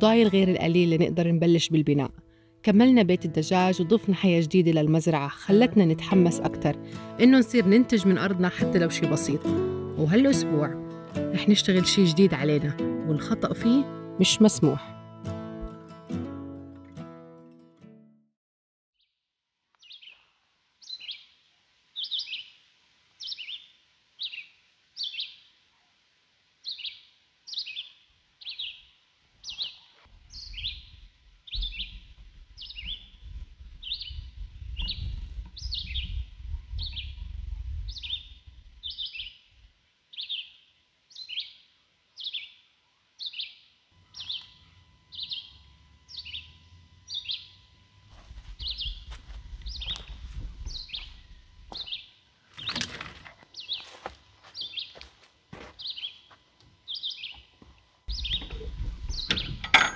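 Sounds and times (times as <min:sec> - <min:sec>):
bird chirping: 0:19.8 - 0:21.4, 0:22.0 - 0:22.6, 0:23.2 - 0:25.6, 0:26.6 - 0:39.5, 0:40.1 - 0:52.8, 0:54.6 - 0:55.0, 0:55.8 - 0:59.9.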